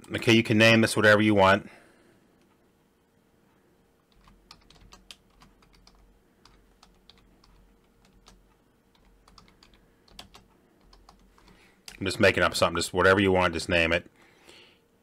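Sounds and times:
computer keyboard typing: 0:04.1 - 0:12.0.

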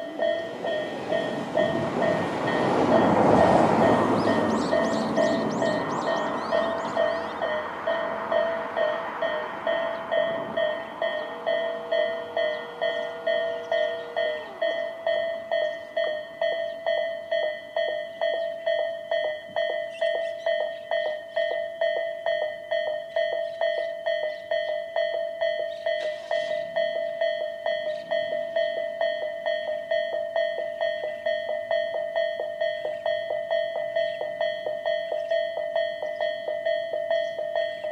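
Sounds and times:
barrier machines whining: 0:00.0 - 0:16.9
level crossing warning bell: 0:00.0 - 0:37.9.

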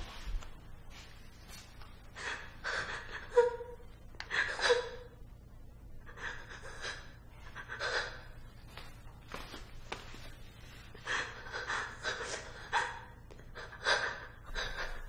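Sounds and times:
woman panting: 0:02.0 - 0:05.2, 0:06.1 - 0:08.5, 0:10.8 - 0:15.0.

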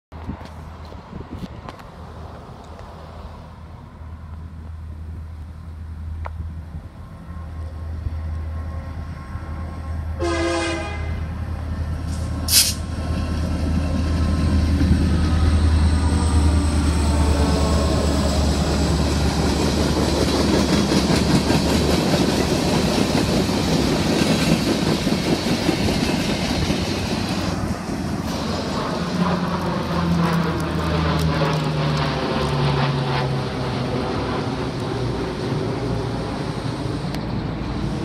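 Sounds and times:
diesel locomotive engine rumble: 0:00.1 - 0:38.0
train wheels rumbling on rails: 0:06.0 - 0:38.0
train horn blast: 0:07.2 - 0:11.4.

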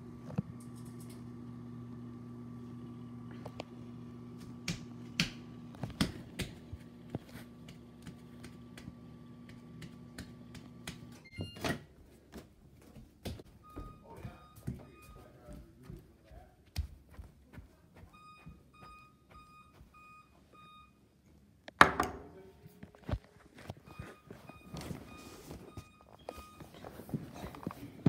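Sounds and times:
microwave oven humming: 0:00.0 - 0:12.0
clicks and taps: 0:04.6 - 0:11.1
short beeps: 0:18.1 - 0:21.0.

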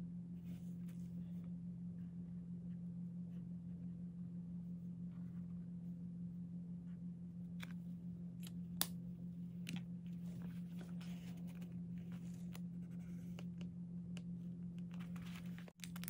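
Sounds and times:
steady low hum: 0:00.0 - 0:16.0
paper rustling: 0:14.8 - 0:16.0.

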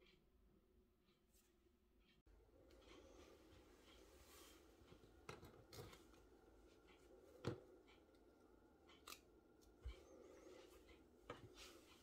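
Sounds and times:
faint clicks and taps: 0:04.8 - 0:12.0.

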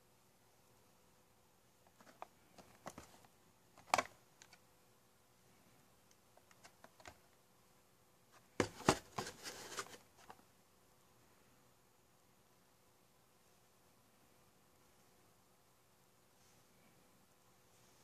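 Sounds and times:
packaging being handled: 0:08.6 - 0:10.4.

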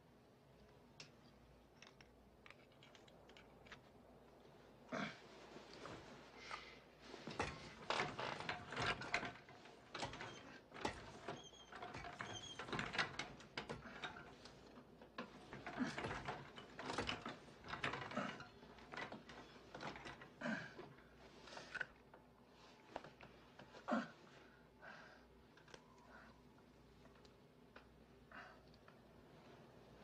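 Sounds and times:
wheelchair clanking and rattling: 0:07.1 - 0:22.2.

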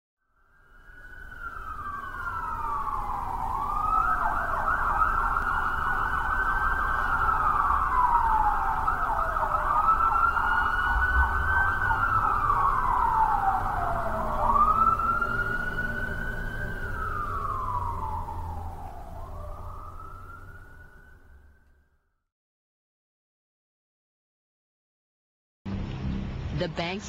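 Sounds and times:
emergency siren wailing: 0:00.5 - 0:21.9.

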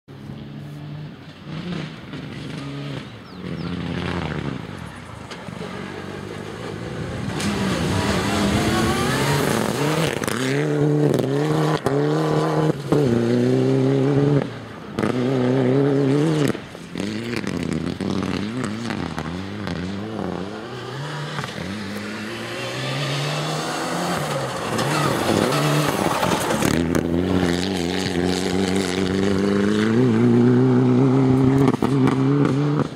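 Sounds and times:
rally car engine at full throttle: 0:00.1 - 0:32.9.

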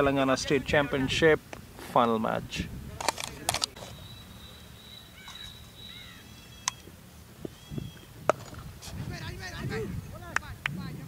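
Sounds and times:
bird calls: 0:03.7 - 0:08.2.

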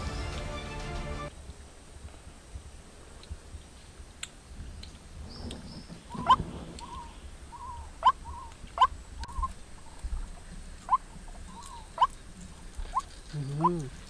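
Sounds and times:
bird chirps: 0:04.7 - 0:14.0
soft arched bird notes: 0:04.8 - 0:14.0.

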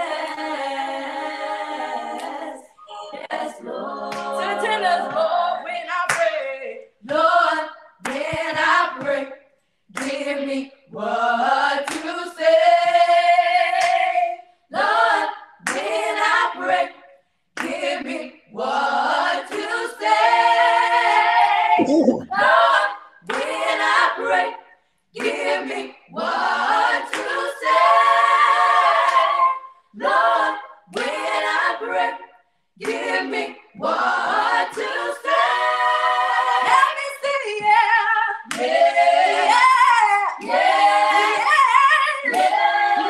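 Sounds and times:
group singing a cappella: 0:00.0 - 0:43.0.

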